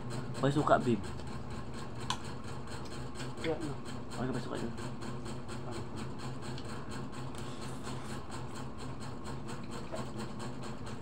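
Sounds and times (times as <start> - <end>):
small motor humming with flutter: 0.0 - 11.0.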